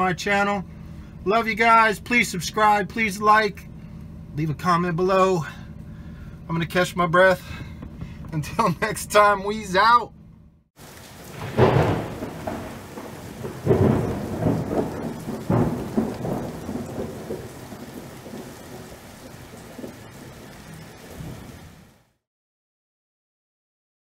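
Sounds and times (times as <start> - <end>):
thunder rumbling: 10.8 - 22.0
steady rain: 10.8 - 22.2.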